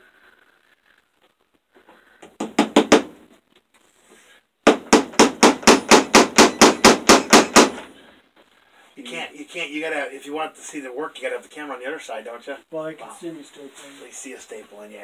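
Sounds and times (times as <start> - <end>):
hammer driving staples into wood: 2.2 - 3.1, 4.7 - 7.9.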